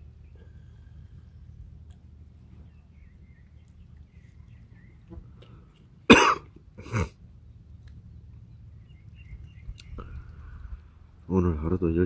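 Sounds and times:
man coughing: 0:06.1 - 0:07.2.

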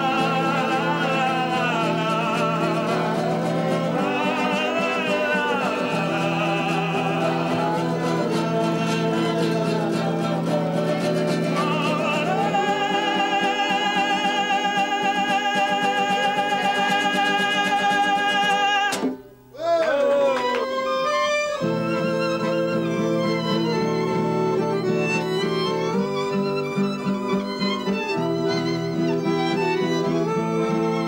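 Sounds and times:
violin: 0:00.0 - 0:19.2, 0:20.2 - 0:31.0
strummed acoustic guitar: 0:00.0 - 0:19.4, 0:21.6 - 0:31.0
man singing with vibrato: 0:00.0 - 0:21.8.

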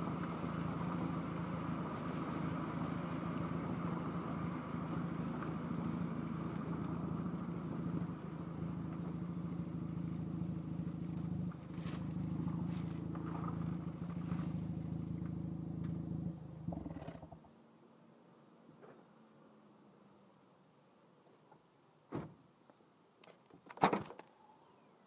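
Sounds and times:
muffled car exhaust: 0:00.0 - 0:17.5.

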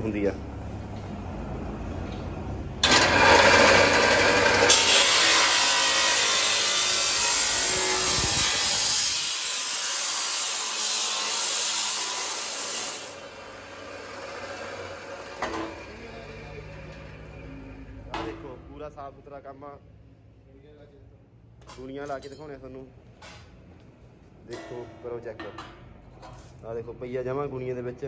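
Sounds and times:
saw grinding through steel: 0:02.8 - 0:17.8
cut-off saw humming: 0:02.8 - 0:18.0.

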